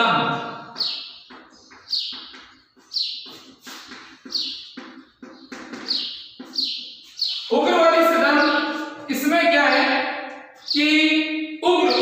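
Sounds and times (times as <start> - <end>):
chalk squeaking on blackboard: 0.8 - 7.5.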